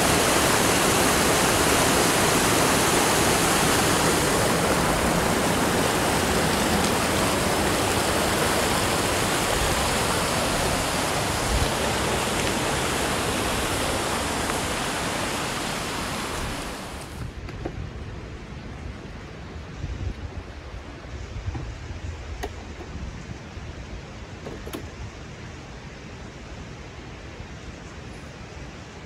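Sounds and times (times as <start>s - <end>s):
creek rushing over stones: 0.0s - 17.4s.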